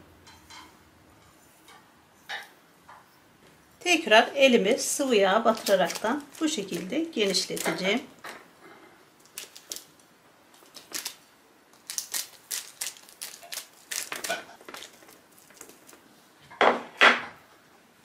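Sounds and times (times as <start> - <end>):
baking paper crinkling: 3.8 - 8.2, 9.2 - 16.4.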